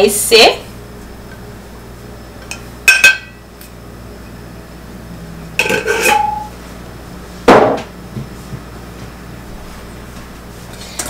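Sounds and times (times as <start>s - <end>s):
glass clinking against steel bowl: 5.6s - 6.5s.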